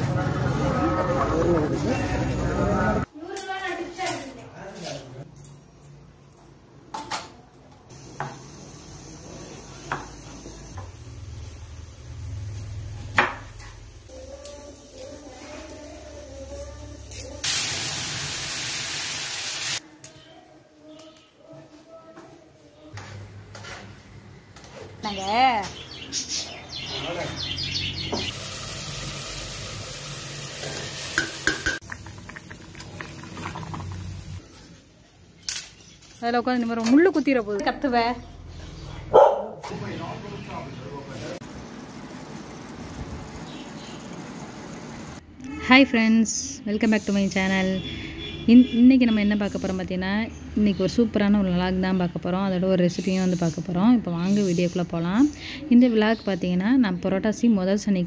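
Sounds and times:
food sizzling in a pot: 7.9 - 19.8, 28.2 - 36.2, 41.4 - 45.2.

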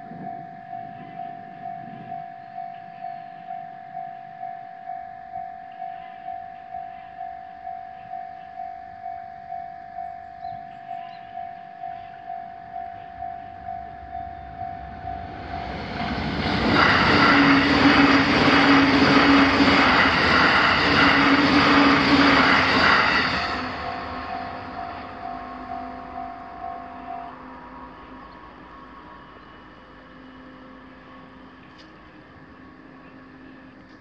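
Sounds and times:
level crossing alarm ringing: 0.0 - 16.2, 23.1 - 28.2
train wheels rushing on rails: 13.6 - 30.1.

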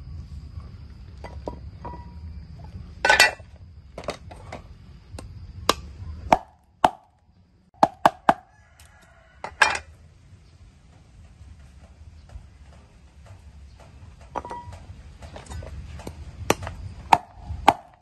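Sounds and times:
cleaver chopping on wooden board: 7.8 - 8.4, 16.5 - 18.0.

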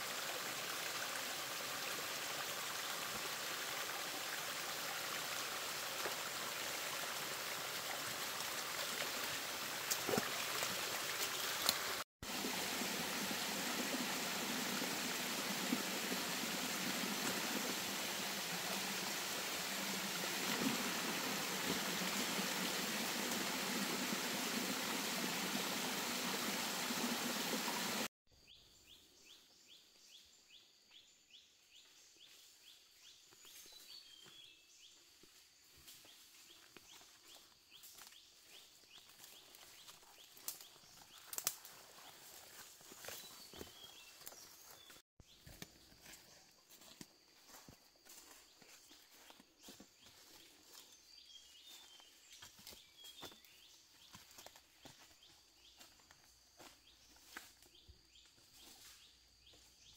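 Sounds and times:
stream rushing over rocks: 0.0 - 28.1.

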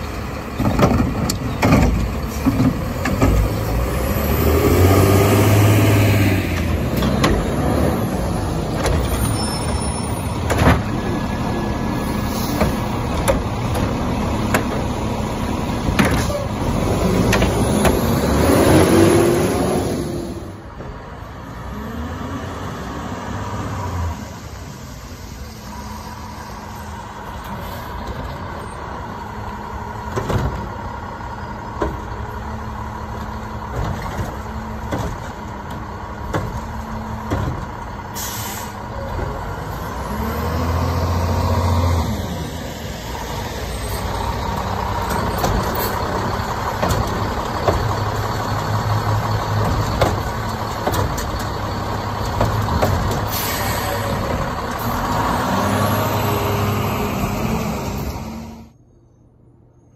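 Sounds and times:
garbage truck engine revving: 0.2 - 20.7, 28.9 - 58.8
air brakes hissing: 38.1 - 38.9, 53.2 - 55.0
metal clanks of carts tipped: 49.5 - 53.4.

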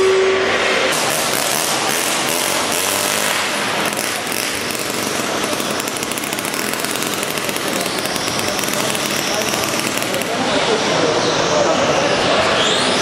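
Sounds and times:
small engine buzzing at high revs: 1.0 - 10.3.

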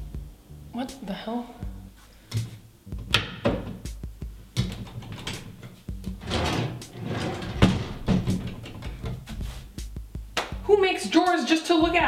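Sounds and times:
drawers knocking shut: 4.6 - 9.2
drawers sliding: 4.7 - 9.3.

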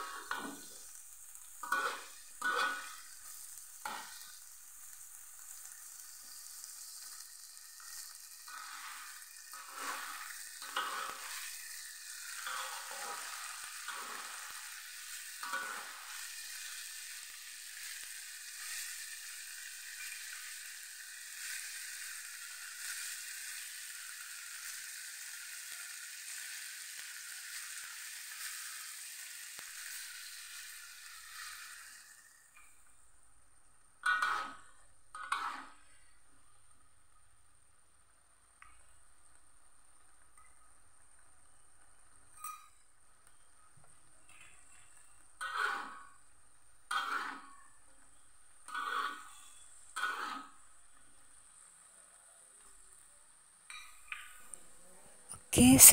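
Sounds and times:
metal spatula scraping wok: 0.0 - 4.5, 6.7 - 23.1, 34.0 - 36.0, 45.4 - 46.2, 46.9 - 47.6, 48.6 - 50.6
vegetables sizzling in a wok: 0.0 - 55.9.

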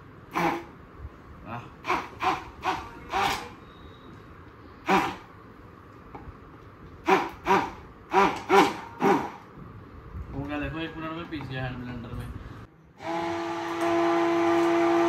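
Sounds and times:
hand blender whirring: 1.8 - 3.5, 7.0 - 9.4, 13.0 - 15.0.

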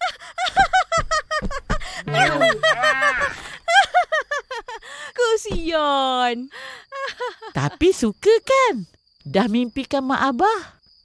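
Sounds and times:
young woman laughing: 0.4 - 4.8, 7.0 - 7.6
overlapping gliding tones: 2.1 - 3.1.

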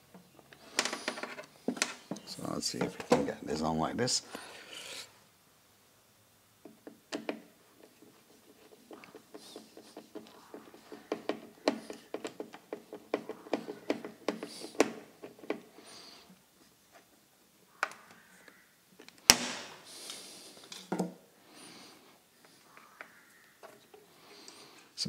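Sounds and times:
screwdriver clicking and scraping: 7.1 - 15.6.

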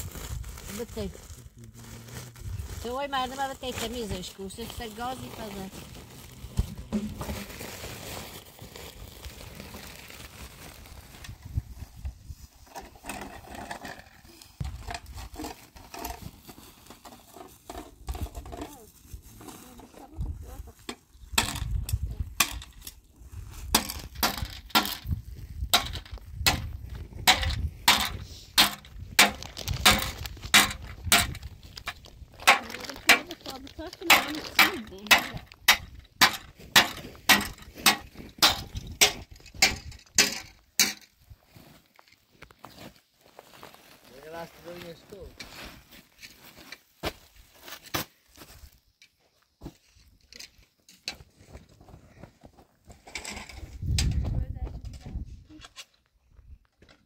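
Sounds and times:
cloth rustling and crinkling: 0.0 - 13.5, 41.2 - 48.7
footsteps crunching on gravel: 41.4 - 50.0.

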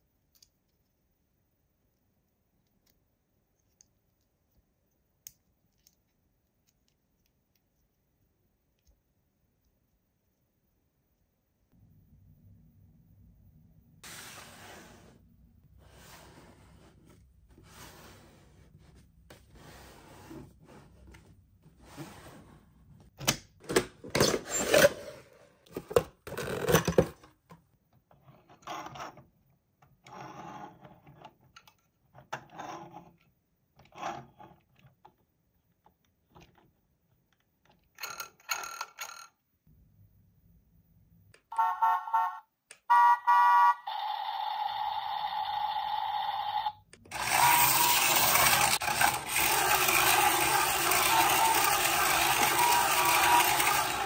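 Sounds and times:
dense electronic toy sound: 41.6 - 54.0
toy and packaging rustling: 47.1 - 54.0.

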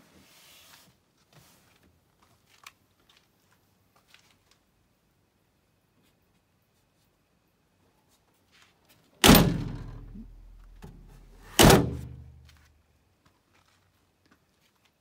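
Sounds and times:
metal car door slamming: 9.2 - 12.4.

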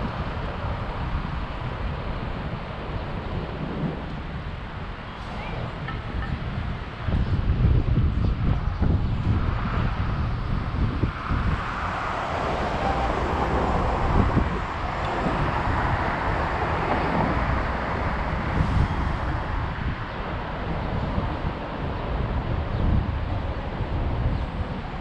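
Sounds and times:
street traffic: 0.0 - 25.0
wind noise on microphone: 0.0 - 25.0
car passing: 9.5 - 23.2.

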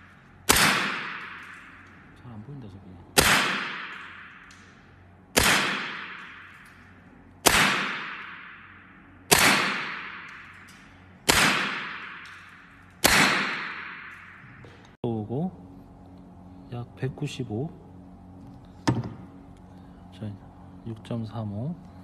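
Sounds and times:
air rifle shots: 0.0 - 1.9, 3.2 - 14.4.

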